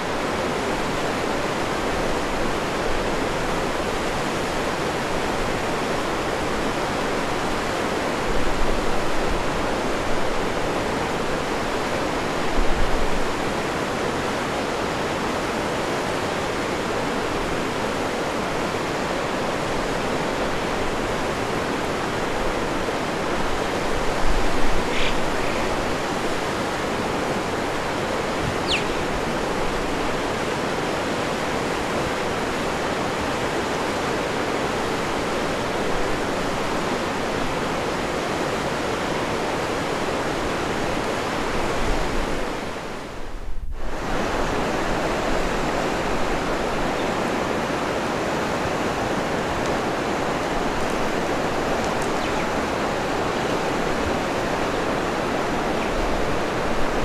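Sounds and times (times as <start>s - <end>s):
running water rushing: 0.0s - 43.2s, 43.8s - 57.0s
faint high chirps: 28.6s - 29.1s.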